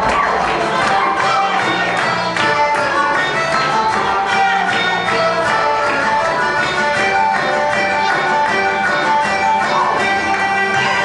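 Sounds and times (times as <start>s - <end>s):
lively dance music: 0.0s - 11.0s.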